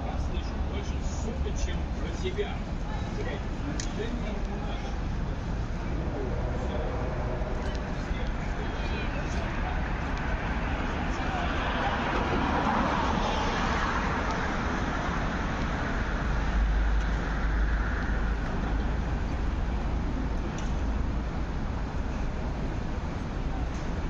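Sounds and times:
vehicle rumble: 0.0 - 24.0.

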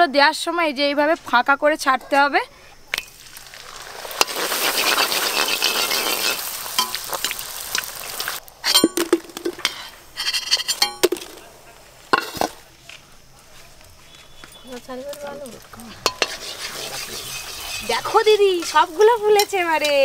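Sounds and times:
dough frying in hot oil: 3.0 - 11.0, 14.0 - 20.0
metal spoon clinking on pan: 8.6 - 11.2, 15.9 - 16.5, 19.0 - 20.0.

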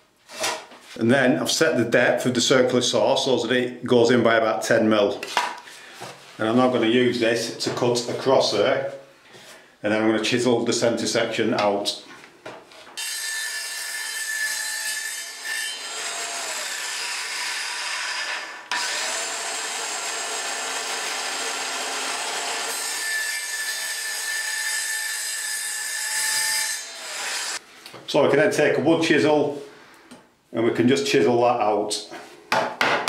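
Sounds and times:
circular saw cutting wood: 13.0 - 27.6.

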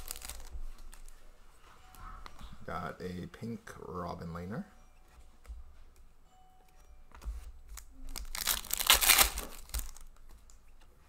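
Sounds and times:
foil wrapper tearing and crackling: 0.0 - 1.0, 7.7 - 10.2
cards rustling: 0.0 - 1.2, 7.2 - 10.9.

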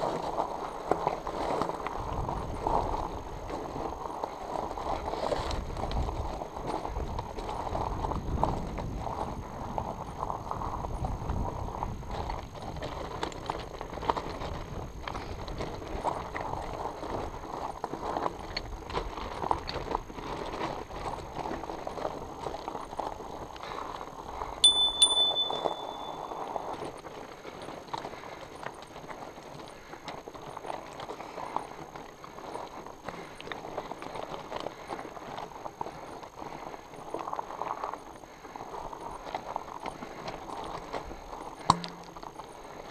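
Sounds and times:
bike rattling: 0.0 - 42.9
bike tyres crunching over gravel: 0.0 - 42.9
sharp metallic ping: 24.6 - 26.4, 41.7 - 42.1.

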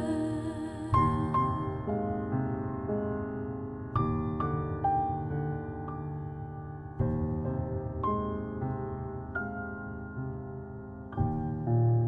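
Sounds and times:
slow piano music: 0.0 - 12.0.

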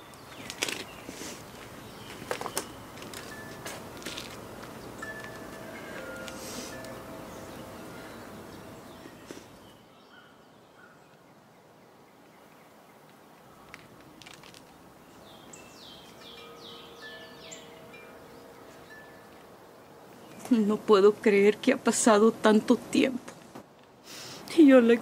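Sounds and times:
quiet outdoor ambience: 0.0 - 25.0
soft music: 2.6 - 9.7, 15.5 - 21.6
bird calling falling notes: 15.4 - 20.8.

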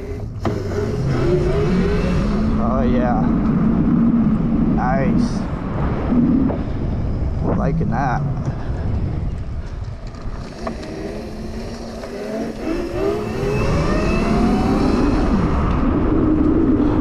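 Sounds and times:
electric motor and chain whine: 0.0 - 4.8, 9.0 - 17.0
wind rush on microphone: 0.0 - 17.0.

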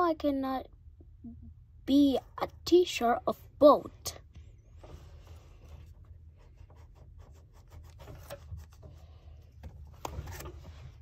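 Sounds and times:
pencil scratching on paper: 5.2 - 9.1.

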